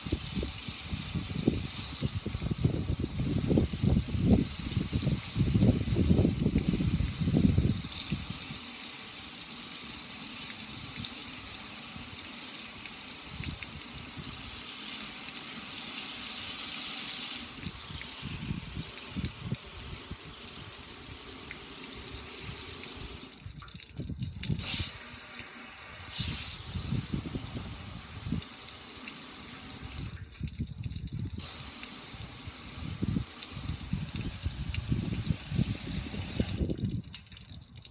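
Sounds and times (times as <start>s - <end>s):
water splashing on metal and concrete: 0.0s - 37.9s.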